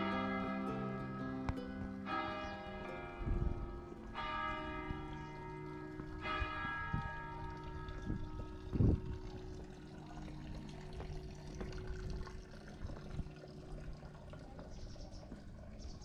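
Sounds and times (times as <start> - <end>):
church bell ringing: 0.0 - 10.0.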